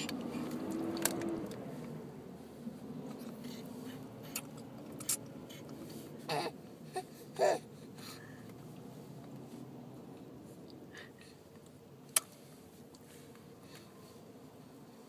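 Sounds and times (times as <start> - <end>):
baby vocalizing: 6.2 - 7.7.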